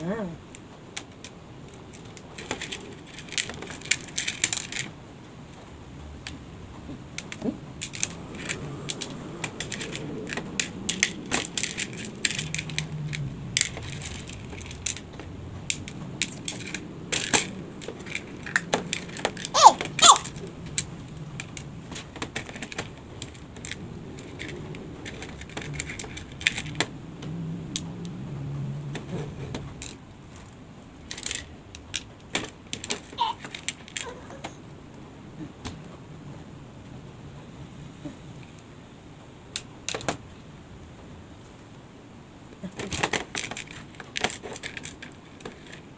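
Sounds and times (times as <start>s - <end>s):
craft stones clicking on plastic: 0.5s - 5.0s, 7.1s - 27.9s, 31.1s - 34.6s, 42.8s - 45.8s.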